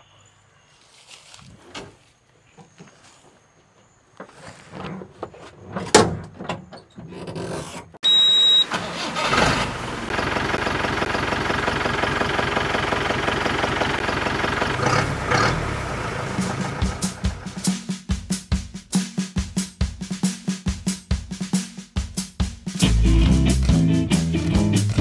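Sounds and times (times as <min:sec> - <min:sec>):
short high beep: 0:08.0 - 0:08.8
jeep engine starting and idling: 0:08.1 - 0:17.6.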